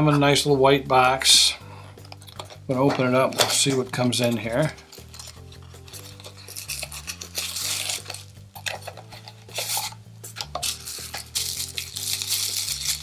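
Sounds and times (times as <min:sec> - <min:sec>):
soft background music: 0:00.0 - 0:13.0
plastic wrap crinkling: 0:02.0 - 0:13.0.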